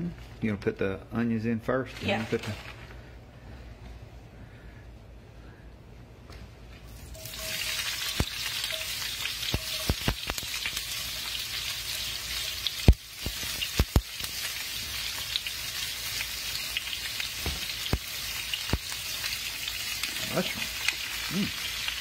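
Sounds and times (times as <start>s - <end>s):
onions sizzling in oil: 7.0s - 22.0s
onion rings knocking into pan: 7.2s - 10.8s, 12.6s - 14.4s, 17.4s - 18.1s.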